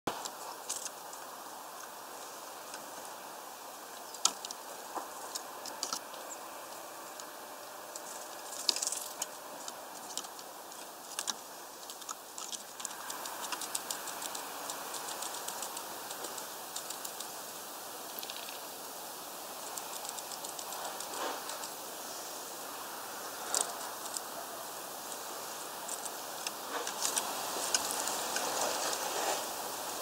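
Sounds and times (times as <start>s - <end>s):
bird pecking at seed: 4.0s - 17.4s, 18.0s - 18.7s, 19.6s - 21.8s, 25.0s - 29.5s.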